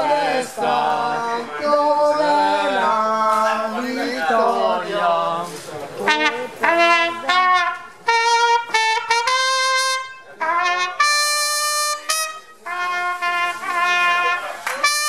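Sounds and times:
solo trumpet melody: 6.0s - 15.0s.

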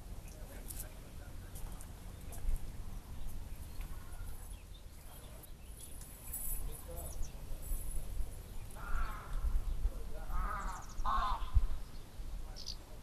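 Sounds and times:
high bird chirps: 8.4s - 12.9s.

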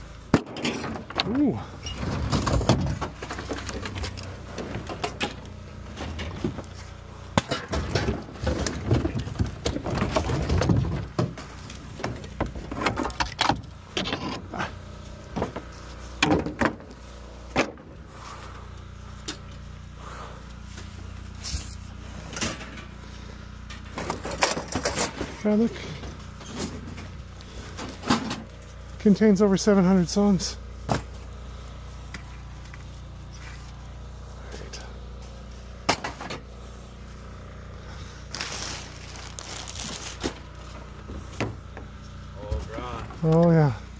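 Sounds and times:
low steady hum: 0.0s - 43.9s
junk clattering onto scrap pile: 0.3s - 16.9s, 22.3s - 23.0s, 23.6s - 28.7s, 35.8s - 36.5s.

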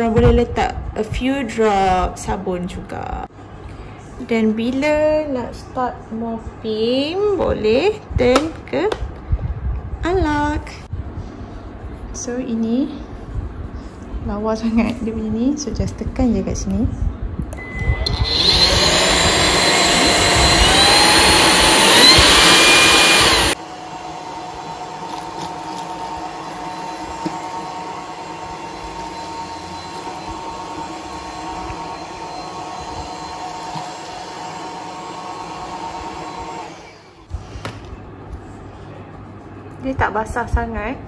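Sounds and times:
vacuum cleaner motor whine: 17.6s - 37.6s.

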